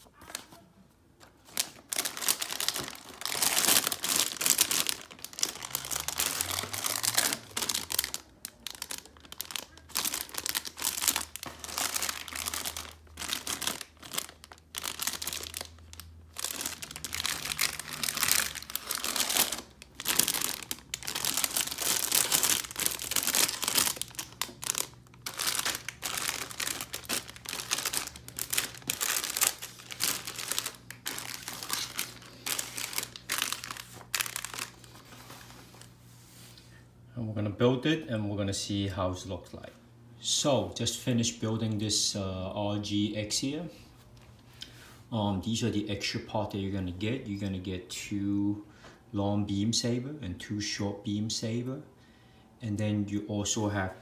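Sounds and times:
plastic bags crinkling: 1.3 - 36.0.

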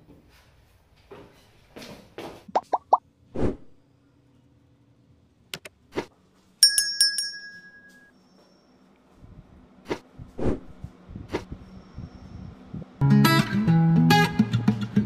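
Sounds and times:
small bell ringing: 6.6 - 8.2.

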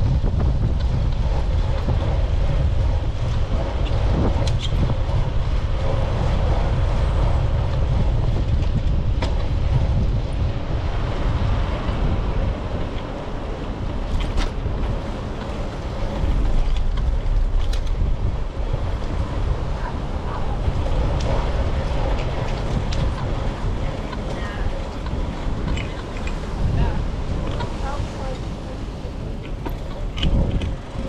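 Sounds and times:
bicycle rolling on pavement: 0.0 - 31.0
wind buffeting microphone: 0.0 - 31.0
sharp ticks and rattles: 21.1 - 26.6.

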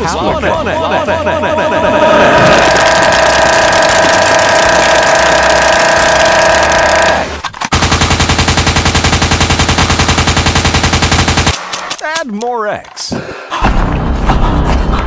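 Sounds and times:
loud noise with held tones: 1.9 - 7.4
rapid automatic gunfire: 2.5 - 12.0.

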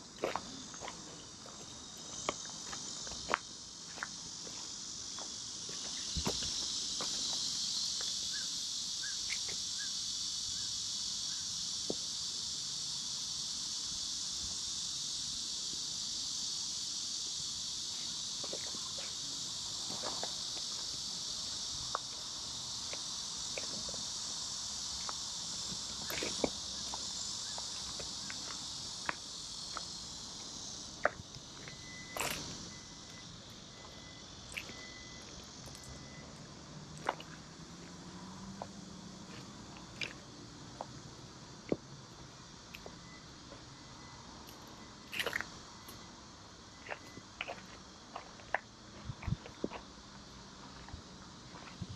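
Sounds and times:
insects chorus: 0.0 - 51.9
footsteps on dirt: 0.2 - 7.5, 25.0 - 30.0, 46.8 - 49.9.

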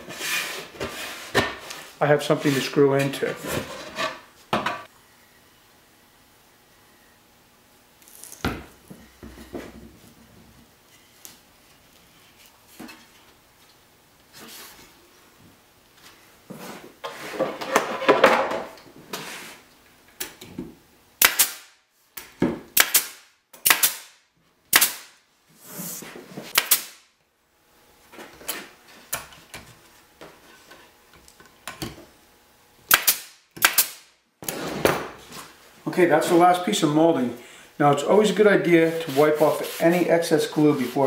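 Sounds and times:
pneumatic nailer shots: 21.2 - 21.8, 22.7 - 25.2, 26.5 - 27.1, 32.9 - 35.0.

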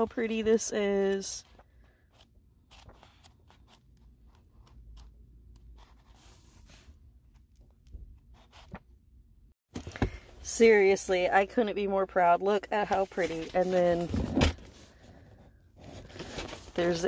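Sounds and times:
book pages turning: 1.0 - 8.8, 12.8 - 14.8, 15.8 - 17.0.

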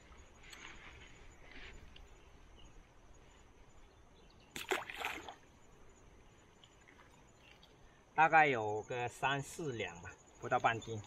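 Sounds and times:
water splash: 4.5 - 5.4
water splattering: 4.6 - 5.4.

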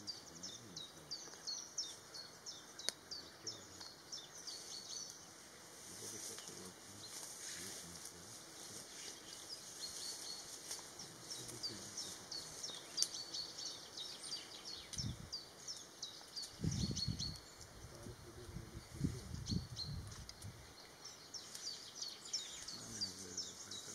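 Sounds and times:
birds chirping: 0.0 - 23.9
low muffled rumbles: 16.6 - 20.7.

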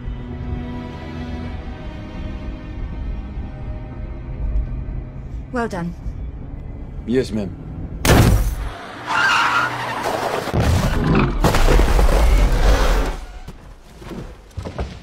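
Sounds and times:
car crash: 8.0 - 13.6
tyres skidding: 8.4 - 15.0.

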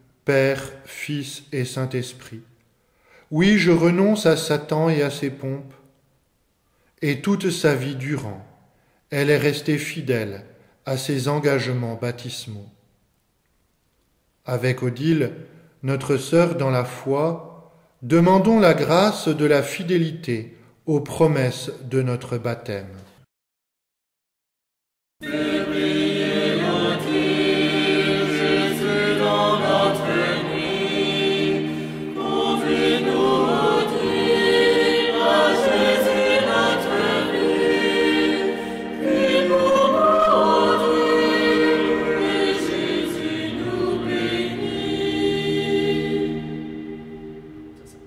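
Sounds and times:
choir singing a hymn: 25.2 - 48.0.

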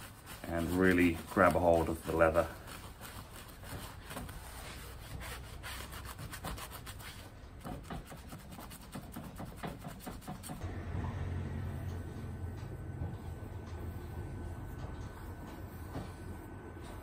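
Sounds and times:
wet sponge rubbing leather: 0.0 - 10.6
low steady hum: 10.6 - 17.0.

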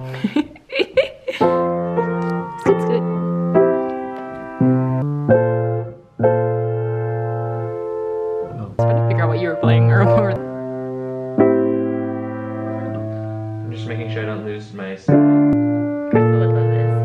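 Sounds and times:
grand piano chords: 1.3 - 17.0.

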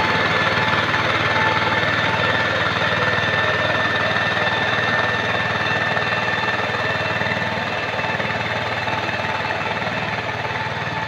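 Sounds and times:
walking tractor engine chugging: 0.0 - 11.0.

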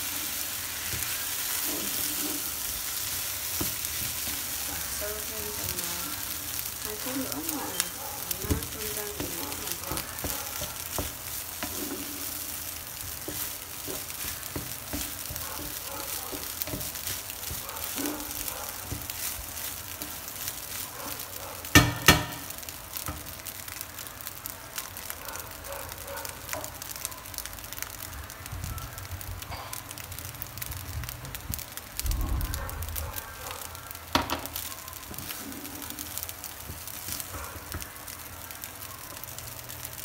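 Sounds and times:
rice sizzling in a frying pan: 0.0 - 40.0
spatula scraping a pan: 0.8 - 4.6, 7.9 - 20.9.

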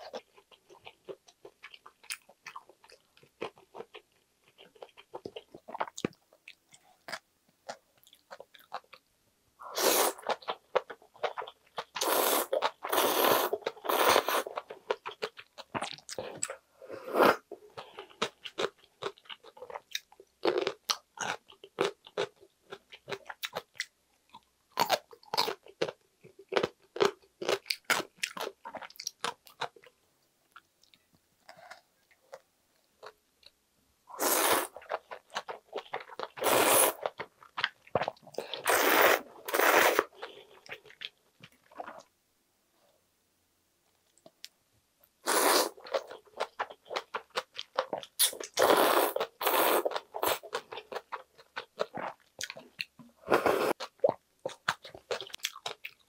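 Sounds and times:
slurping noodles: 12.0 - 14.5, 34.1 - 34.8, 36.4 - 37.0, 38.4 - 40.1, 45.2 - 45.8, 48.6 - 50.4, 53.3 - 53.8.

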